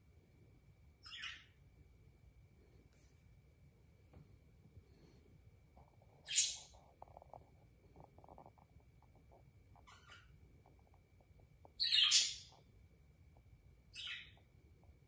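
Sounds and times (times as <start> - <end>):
budgerigar chattering clicks: 9.8 - 10.3.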